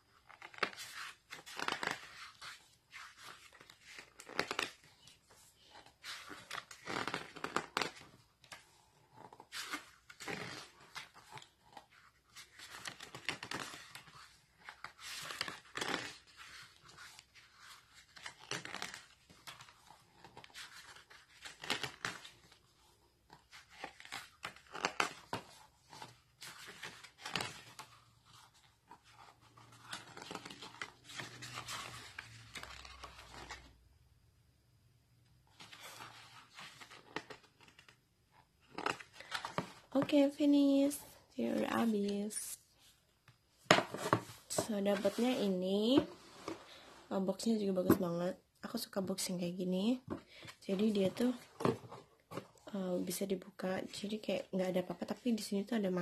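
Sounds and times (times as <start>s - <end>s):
book pages turning: 0.2s - 33.7s, 35.5s - 40.4s, 43.2s - 47.0s.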